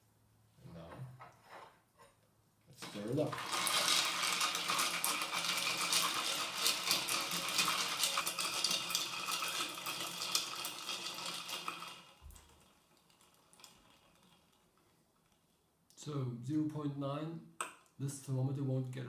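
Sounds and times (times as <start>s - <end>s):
ice cubes clinking in beaker: 2.8s - 14.8s.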